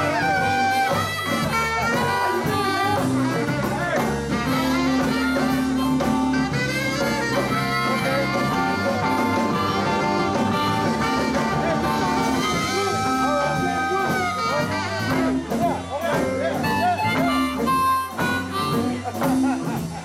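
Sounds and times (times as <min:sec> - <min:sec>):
bass guitar: 0:00.0 - 0:20.0
bending lead guitar line: 0:00.0 - 0:20.0
drums: 0:00.0 - 0:20.0
electric guitar: 0:00.0 - 0:20.0
keyboard: 0:00.0 - 0:20.0.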